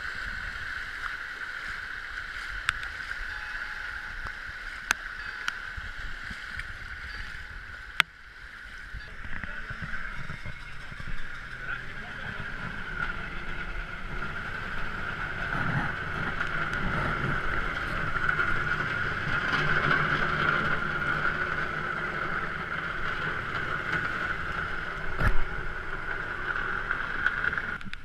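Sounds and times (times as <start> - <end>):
diesel engine running: 9.4 - 27.8.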